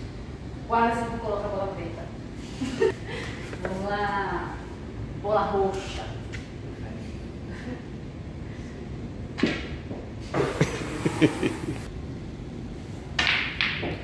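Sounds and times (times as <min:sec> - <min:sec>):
pool balls clacking: 0:13.1 - 0:14.0.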